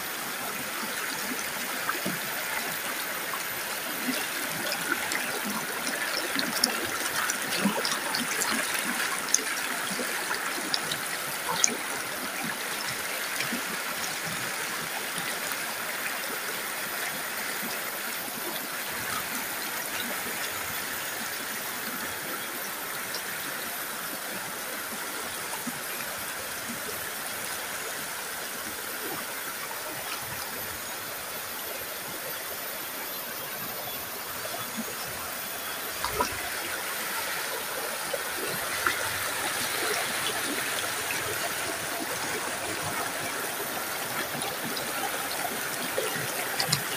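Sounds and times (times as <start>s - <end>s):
stream rushing over rocks: 0.0s - 23.4s, 34.0s - 46.9s.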